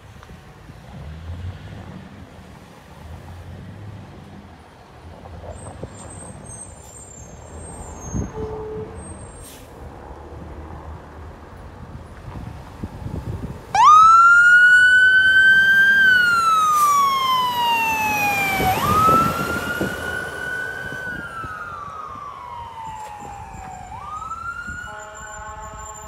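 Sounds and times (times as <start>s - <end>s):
fire engine siren wailing: 13.7s - 26.0s.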